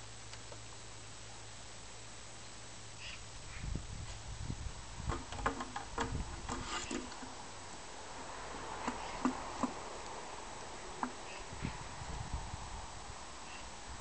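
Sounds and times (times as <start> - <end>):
plastic watering can knocking: 5.1 - 7.1.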